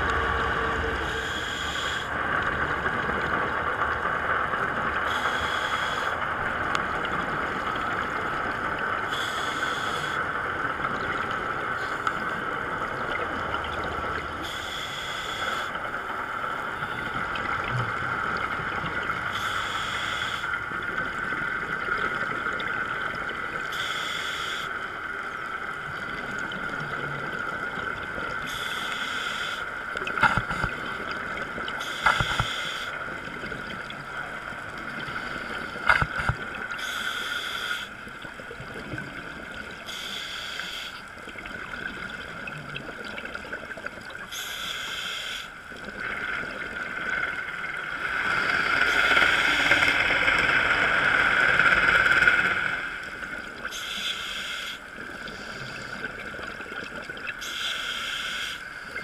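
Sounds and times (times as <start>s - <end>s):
steady underwater hiss: 0.0s - 59.0s
scuba regulator breathing hiss: 1.2s - 2.1s, 5.1s - 6.2s, 9.1s - 10.2s, 14.4s - 15.8s, 19.3s - 20.6s, 23.7s - 24.8s, 28.5s - 29.7s, 31.8s - 33.0s, 36.8s - 38.0s, 39.9s - 41.0s, 44.3s - 45.6s, 53.7s - 55.9s, 57.4s - 58.7s.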